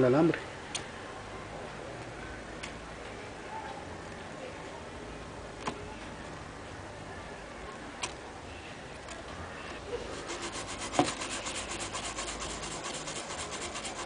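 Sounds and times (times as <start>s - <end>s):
brush scrubbing circuit board: 9.9s - 14.0s.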